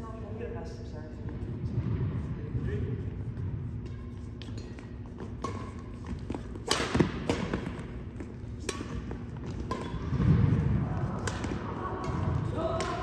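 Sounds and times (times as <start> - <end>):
rackets hitting shuttlecock: 3.8 - 13.0.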